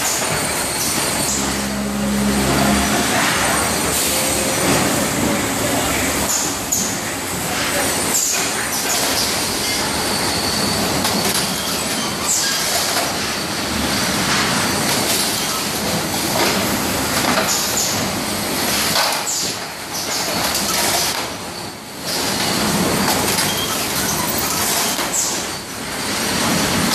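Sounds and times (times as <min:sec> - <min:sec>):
packing machinery rumbling: 0:00.0 - 0:11.8
roller conveyors rattling: 0:00.0 - 0:26.9.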